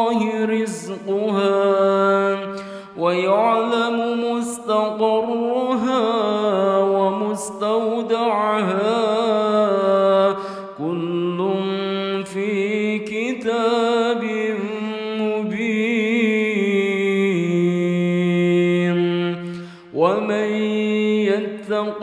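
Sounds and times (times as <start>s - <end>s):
person chanting melodically: 0.0s - 22.0s.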